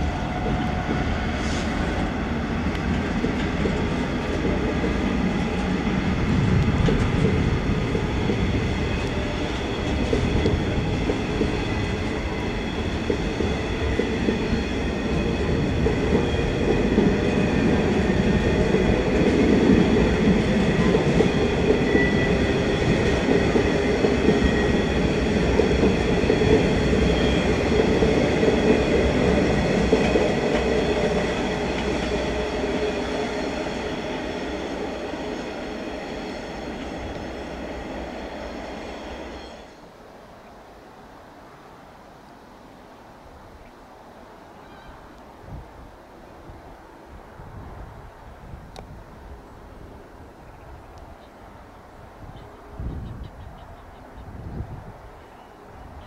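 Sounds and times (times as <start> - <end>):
wheels running on rails: 0.0 - 38.1
freight train rolling past: 0.0 - 40.1.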